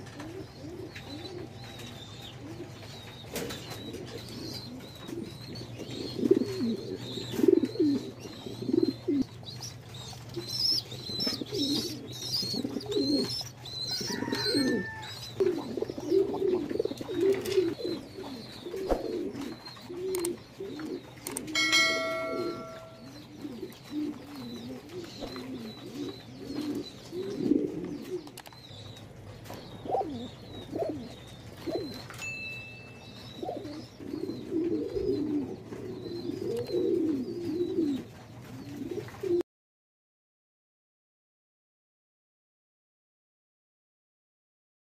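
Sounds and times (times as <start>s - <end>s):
pigeons cooing: 0.0s - 32.1s, 33.0s - 39.4s
bell-like chime: 21.6s - 23.1s, 32.2s - 33.3s.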